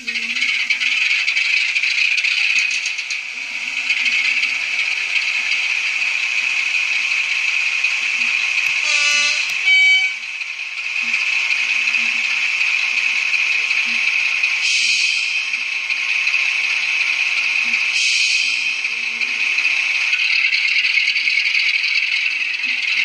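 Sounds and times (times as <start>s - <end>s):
model train diesel engine sound: 0.0s - 23.0s
two-tone train horn: 8.7s - 10.3s.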